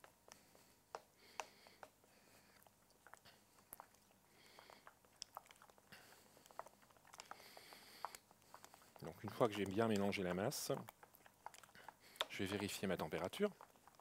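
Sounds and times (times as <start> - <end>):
utensil stirring in metal bowl: 5.9 - 14.0.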